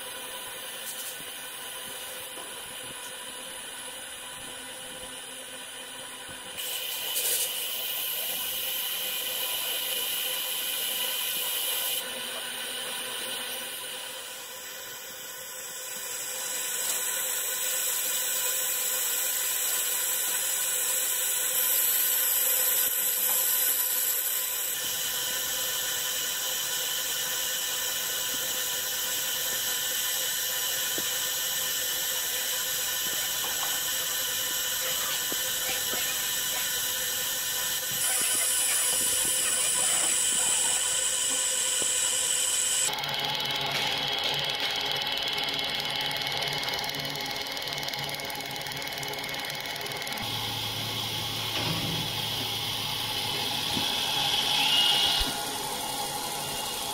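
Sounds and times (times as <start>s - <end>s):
laser engraving hiss: 0.0s - 56.9s
thin whining tones: 28.1s - 56.9s.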